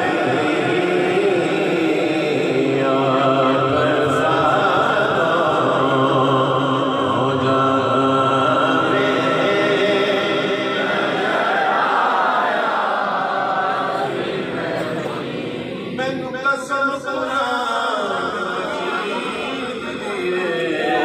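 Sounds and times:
man singing unaccompanied: 0:00.0 - 0:11.0.

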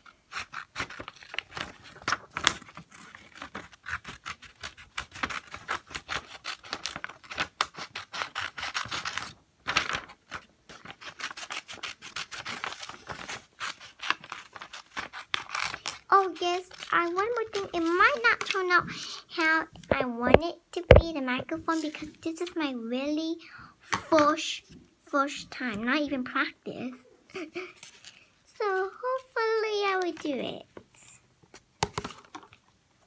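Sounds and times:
scissors snipping paper: 0:00.3 - 0:18.6.

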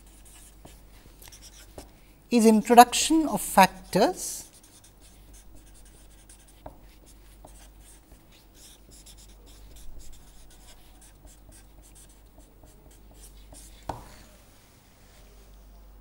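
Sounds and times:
marker scratching on paper: 0:00.0 - 0:01.9, 0:04.4 - 0:14.2
pen tap: 0:13.8 - 0:14.1.

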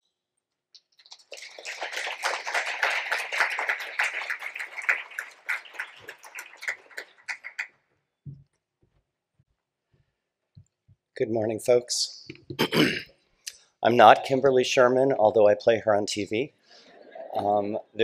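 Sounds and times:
audience applauding: 0:01.0 - 0:07.8.

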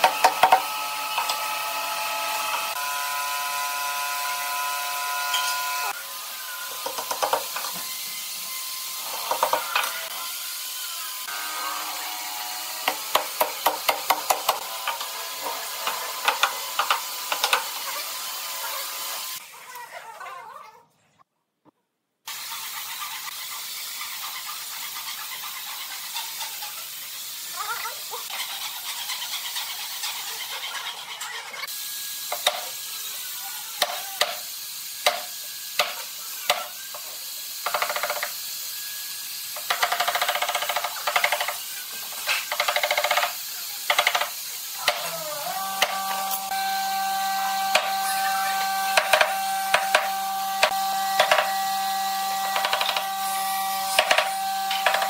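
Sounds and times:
electric motor humming: 0:00.0 - 0:19.4, 0:35.1 - 0:55.0.

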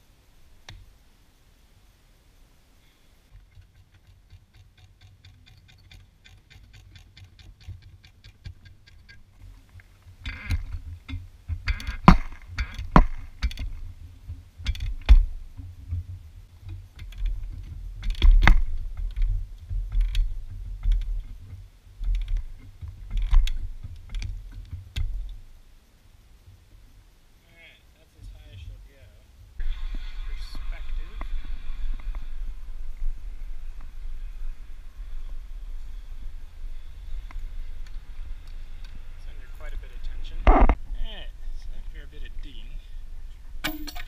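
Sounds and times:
low rumble: 0:29.6 - 0:41.8.

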